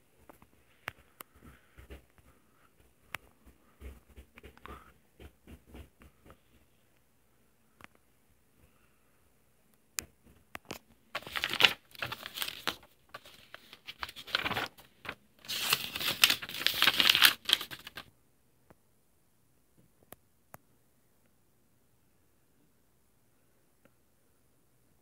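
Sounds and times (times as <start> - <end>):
paper pages rustling: 10.6 - 18.1.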